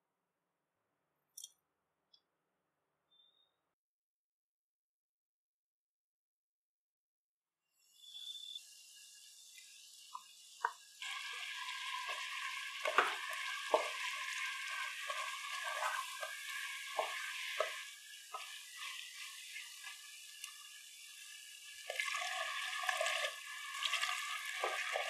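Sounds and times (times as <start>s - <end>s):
paste sizzling in hot oil: 8.4s - 25.0s
wooden spatula scraping pan: 11.0s - 20.0s.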